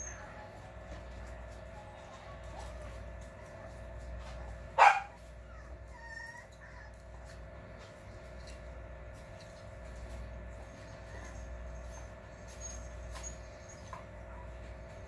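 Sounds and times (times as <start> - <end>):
puppy barking: 4.2 - 7.4
puppy squeaking: 5.5 - 7.0.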